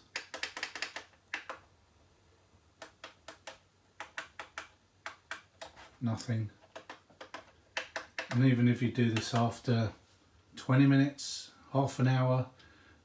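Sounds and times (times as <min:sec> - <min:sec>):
push buttons clicking: 0:00.1 - 0:01.6, 0:02.8 - 0:05.8, 0:06.6 - 0:09.6.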